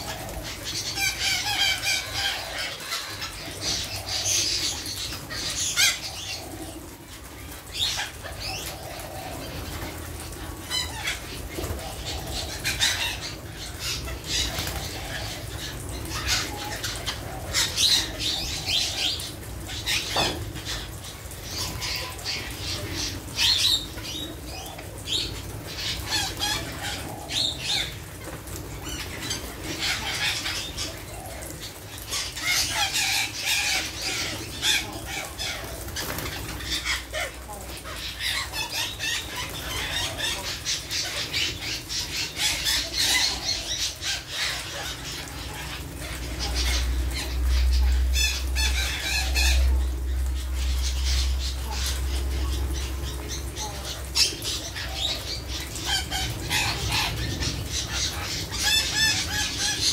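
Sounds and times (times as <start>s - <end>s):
parakeets chattering and screeching: 0.0s - 59.9s
wings flapping: 14.0s - 15.5s, 34.7s - 37.8s.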